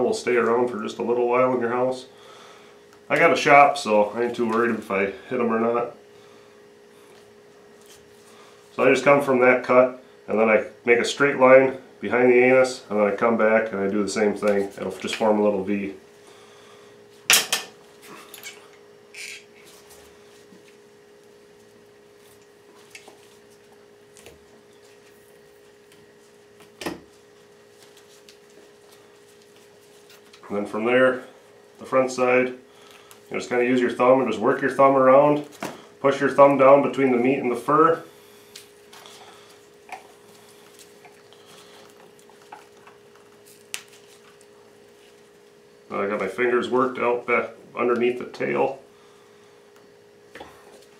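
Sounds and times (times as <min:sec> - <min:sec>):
steady low hum: 0:00.0 - 0:50.9
soft rustling of hands: 0:27.2 - 0:30.4.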